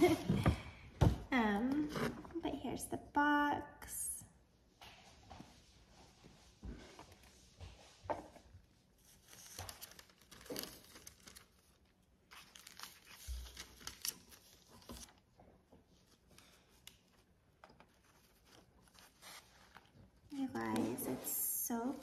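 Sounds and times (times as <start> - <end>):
paper wrapping rustling: 8.3 - 22.0.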